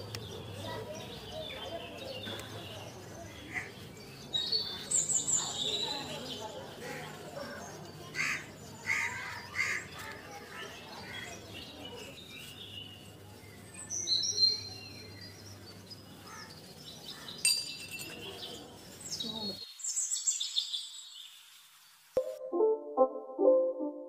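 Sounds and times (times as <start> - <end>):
small birds chirping: 0.0 - 22.2
steel cup clinking on wood: 17.4 - 18.4.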